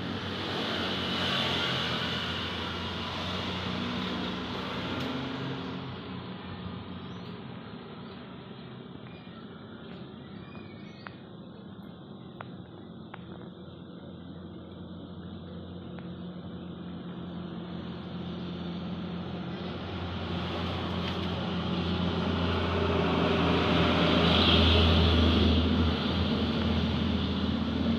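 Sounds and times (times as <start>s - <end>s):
vehicle engine running: 11.3s - 27.9s.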